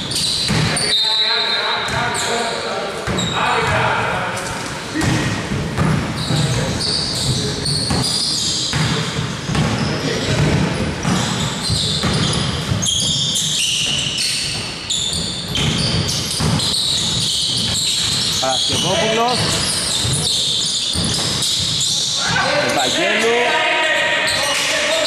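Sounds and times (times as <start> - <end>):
basketball bouncing: 0.0 - 0.8, 5.0 - 22.0
sneaker squeaks: 0.0 - 25.0.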